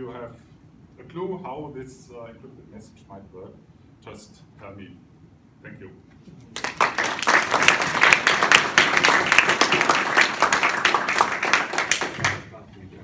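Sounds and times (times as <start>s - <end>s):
audience applauding: 6.6s - 12.5s.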